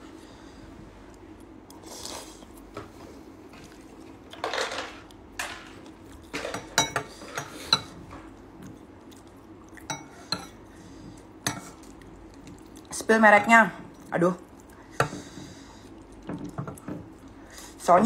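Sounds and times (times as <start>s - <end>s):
fork clinking on ceramic bowl: 6.5s - 7.9s.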